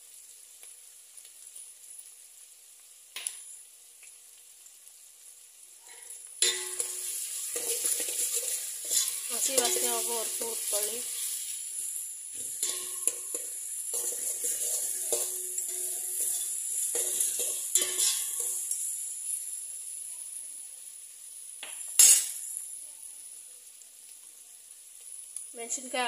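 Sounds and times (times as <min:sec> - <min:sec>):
food sizzling in oil: 0:00.0 - 0:26.0
spatula scraping a metal pot: 0:06.5 - 0:11.5, 0:12.4 - 0:18.7.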